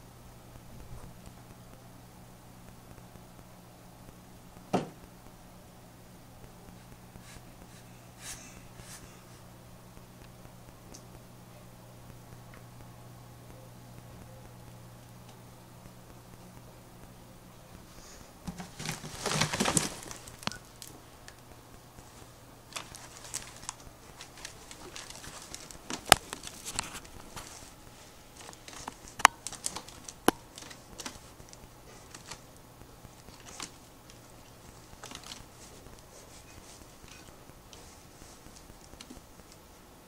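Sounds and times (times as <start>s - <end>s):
faint steady hum: 0.0s - 40.0s
plastic tube crinkling and rattling: 17.8s - 39.7s.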